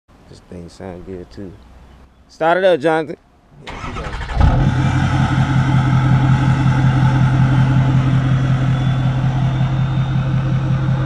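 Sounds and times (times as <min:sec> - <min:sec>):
diesel engine idling: 0:03.7 - 0:11.0.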